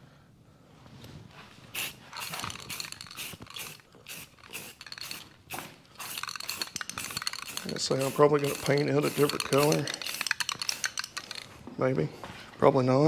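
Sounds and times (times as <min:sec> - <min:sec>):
spray paint can rattling: 0:01.8 - 0:11.6.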